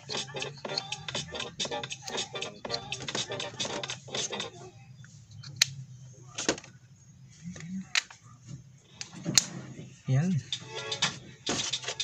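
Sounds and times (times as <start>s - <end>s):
background music: 0.0s - 4.8s, 9.3s - 12.0s.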